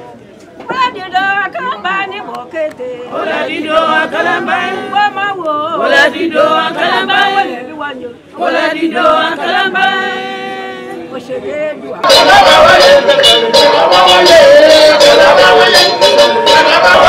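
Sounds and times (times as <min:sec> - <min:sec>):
person chanting unaccompanied: 0:08.4 - 0:17.0.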